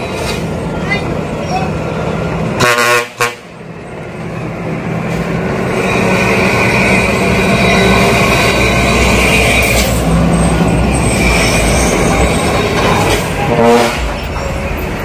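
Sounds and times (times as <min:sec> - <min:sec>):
truck horn toots: 0:02.6 - 0:03.5, 0:13.4 - 0:14.2.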